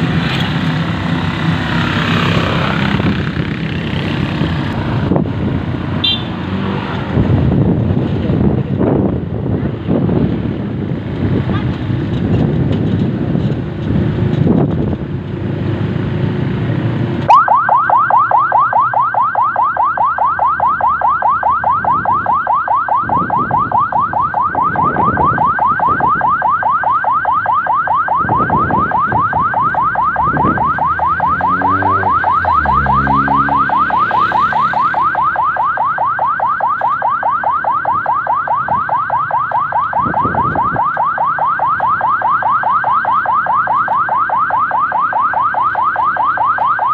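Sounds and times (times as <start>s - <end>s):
wind and road noise: 0.0s - 46.9s
vehicle siren yelping: 1.2s - 5.2s, 17.3s - 46.9s.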